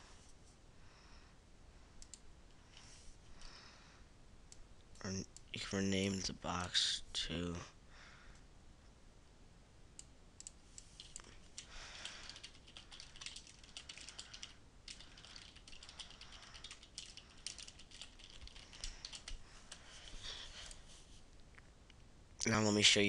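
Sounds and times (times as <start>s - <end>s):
faint keyboard typing: 2.0s - 3.5s, 10.0s - 20.9s.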